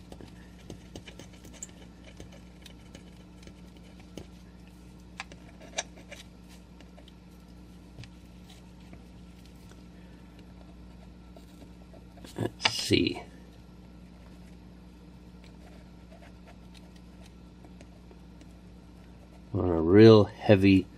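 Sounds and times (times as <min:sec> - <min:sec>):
pen nib scratching on paper: 0:00.0 - 0:04.4
low steady hum: 0:00.0 - 0:20.9.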